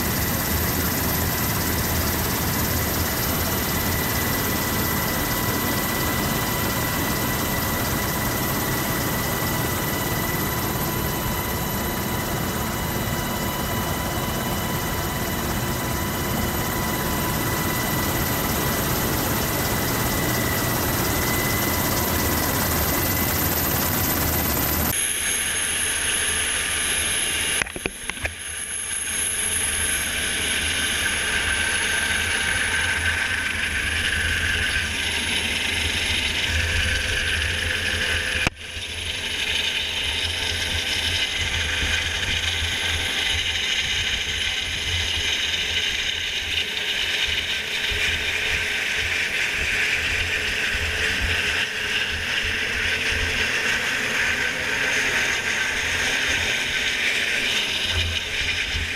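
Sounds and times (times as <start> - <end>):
helicopter hovering overhead: 0.0 - 58.9.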